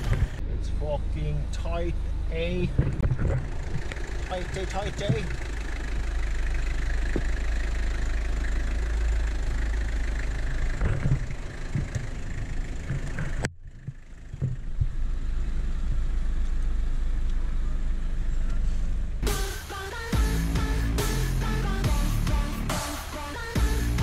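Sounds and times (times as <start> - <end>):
diesel engine rumbling at low revs: 0.0 - 24.0
vehicle knocks and thumps: 2.6 - 5.7, 7.0 - 7.5, 10.6 - 15.0.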